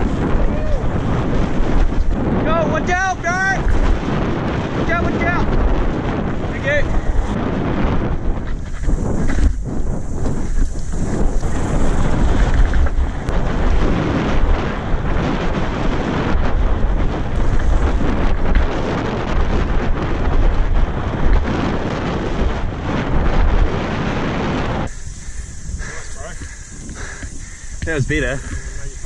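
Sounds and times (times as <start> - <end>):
bike tyres rumbling: 0.0 - 29.0
wind buffeting microphone: 0.0 - 29.0
bike knocking and rattling: 7.0 - 22.2, 24.9 - 29.0.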